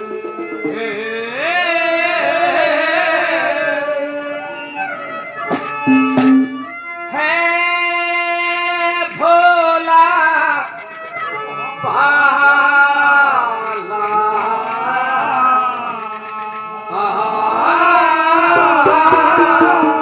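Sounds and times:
man singing into microphone: 0.6 - 4.8, 11.9 - 20.0
instrumental accompaniment: 4.0 - 7.1, 18.5 - 20.0
sharp drum strokes: 5.5 - 6.8, 18.6 - 20.0.

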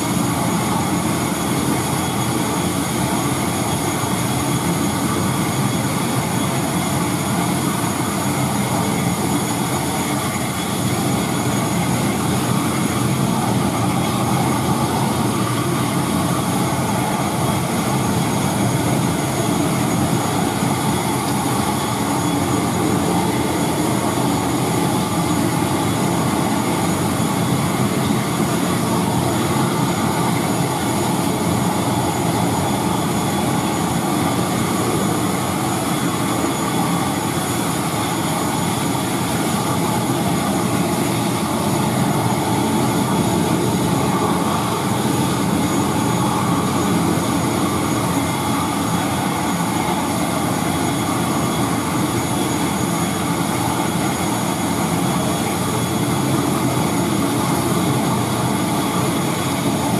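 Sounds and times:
high engine whine: 0.0 - 59.9
turboprop engine running: 0.0 - 59.9.

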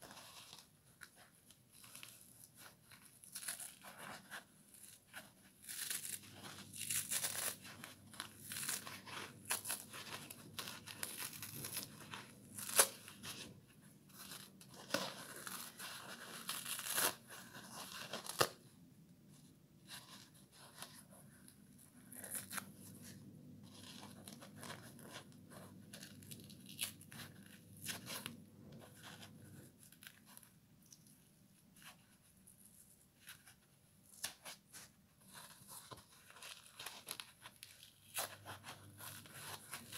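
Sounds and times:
sponge being torn apart: 3.2 - 13.5, 14.2 - 18.6, 22.0 - 22.8.

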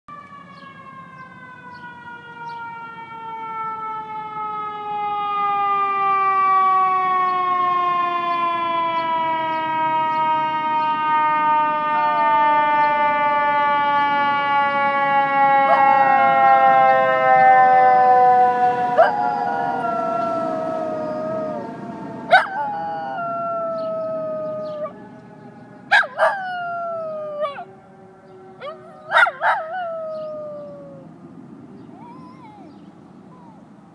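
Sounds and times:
siren winding down: 0.1 - 31.1
dog howling: 15.6 - 16.8, 18.8 - 21.7, 22.3 - 25.0, 25.9 - 27.7, 28.6 - 31.1, 32.0 - 32.7.

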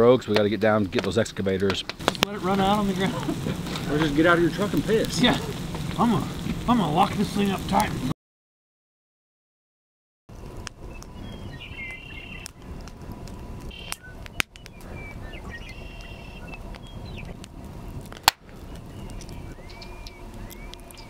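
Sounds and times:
low background rumble: 0.4 - 8.1, 10.3 - 21.0
birds chirping: 1.5 - 8.1, 10.8 - 17.6, 18.4 - 21.0.

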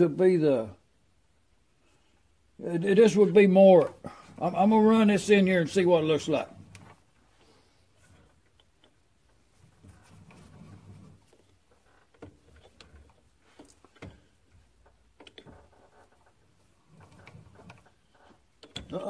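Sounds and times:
metallic clicks and knocks: 8.1 - 19.0.

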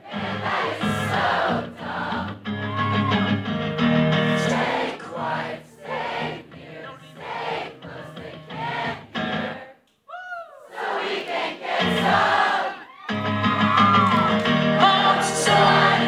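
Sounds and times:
crowd singing along: 0.0 - 2.7, 4.0 - 9.8, 10.7 - 12.9, 14.4 - 16.0
man singing: 14.7 - 16.0.

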